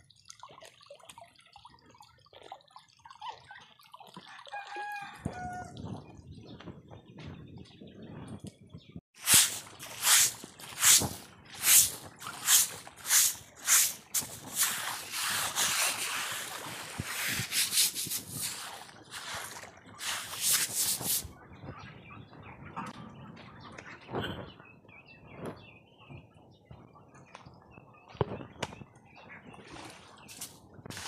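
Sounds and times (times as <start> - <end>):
brush scrubbing under water: 9.2 - 21.3.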